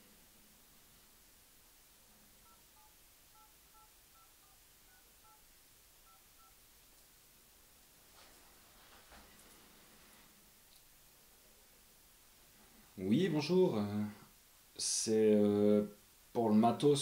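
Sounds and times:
phone keypad beeps: 2.4s - 5.4s, 6.0s - 6.6s.

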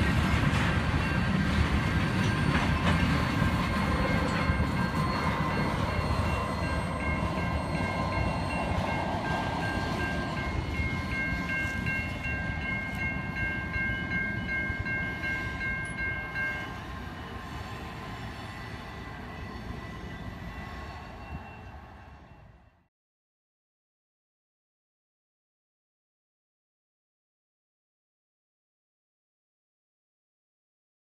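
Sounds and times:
rumble of rolling train cars: 0.0s - 22.9s
train wheels squealing: 0.0s - 22.9s.

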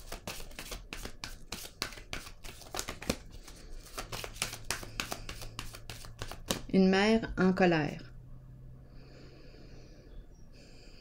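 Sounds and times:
cards being shuffled: 0.0s - 6.7s.

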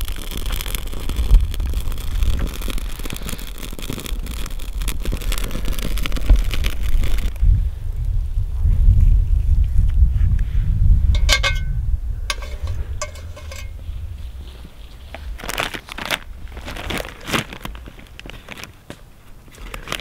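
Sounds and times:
food packaging crinkling: 0.0s - 7.4s, 15.2s - 20.0s
wind rumble on microphone: 0.0s - 18.7s
light clinks: 11.2s - 13.8s.

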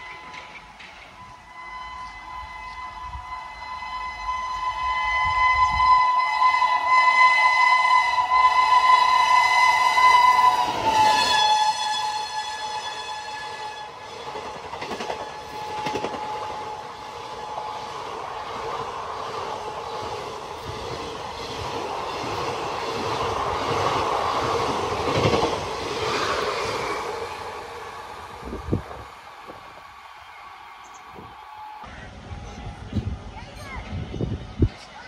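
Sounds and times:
train wheels rumbling on rails: 0.0s - 35.0s
faint locomotive horn: 1.2s - 14.0s, 15.0s - 18.3s.

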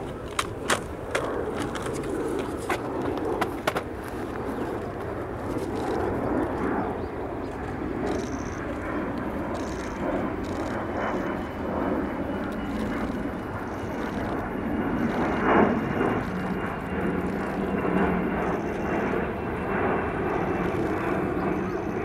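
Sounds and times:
jet flying past: 0.0s - 22.0s
sharp clicks: 8.0s - 10.9s.

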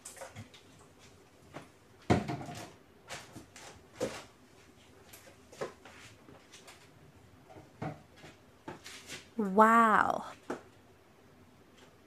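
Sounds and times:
objects knocking on cabinet: 2.1s - 2.7s, 7.8s - 8.8s.

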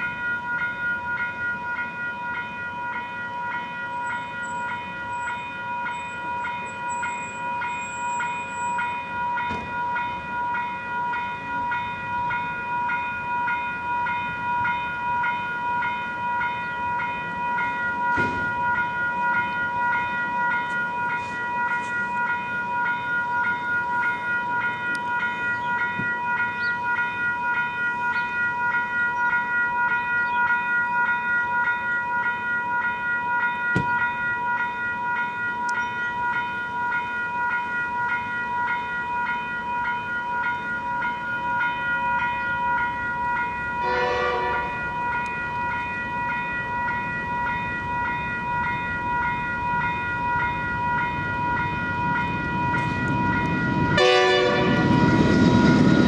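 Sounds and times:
level crossing bells ringing: 0.0s - 56.0s
train horn blast: 43.8s - 44.8s, 54.0s - 55.0s.

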